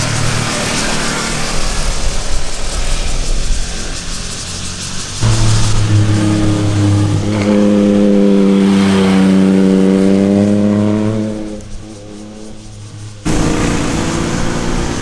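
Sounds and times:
motorcycle engine passing by: 5.2s - 15.0s.

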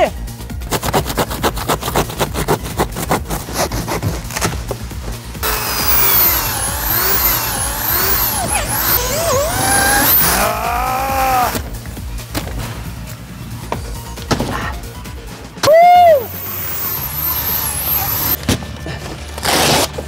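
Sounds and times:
background music with beat: 0.0s - 6.9s, 11.0s - 16.9s
power tool cutting cardboard: 5.4s - 11.7s, 16.2s - 18.4s.

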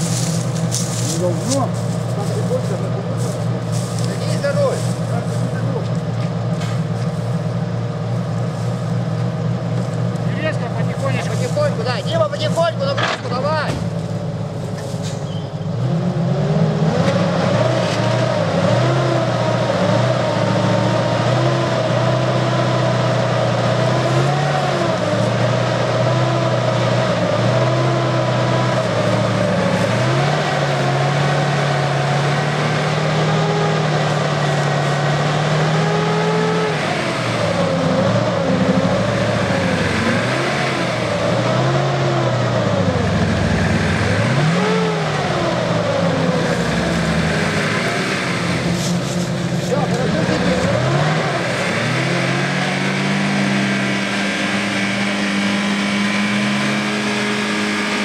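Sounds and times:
car engine revving: 0.0s - 14.9s, 15.6s - 58.0s.

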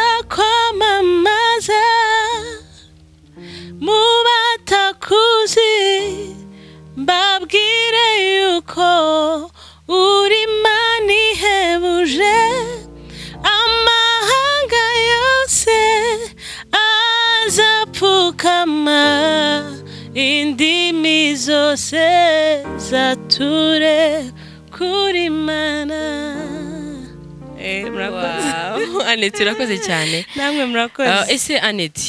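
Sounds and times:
woman singing with vibrato: 7.0s - 31.4s
electronic keyboard chords: 10.5s - 30.3s.

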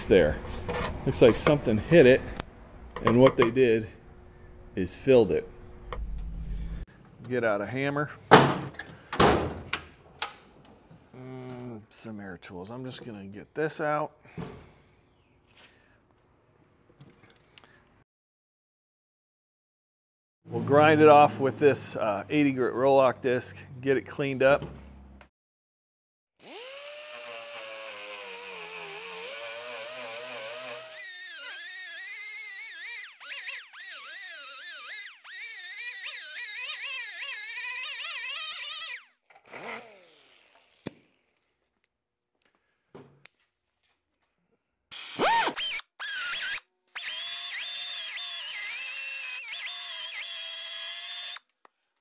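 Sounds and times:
pneumatic grinder whining: 26.4s - 40.9s, 44.9s - 51.5s.

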